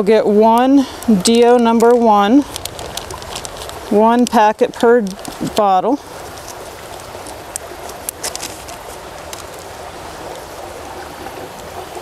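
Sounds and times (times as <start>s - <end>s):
creek water over rocks: 0.0s - 12.0s
powder packet crinkling: 1.8s - 5.6s.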